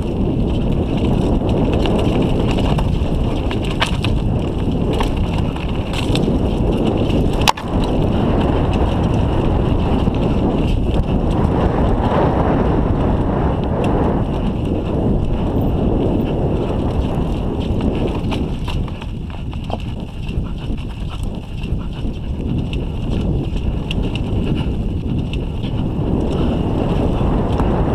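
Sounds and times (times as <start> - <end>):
tyres crunching over gravel: 0.0 - 10.7
bike rattling: 0.0 - 27.9
wind on microphone: 0.0 - 27.9.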